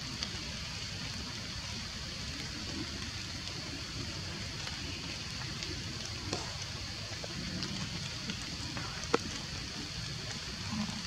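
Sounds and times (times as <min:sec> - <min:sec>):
outdoor background hiss: 0:00.0 - 0:11.0
faint ticks: 0:02.3 - 0:11.0.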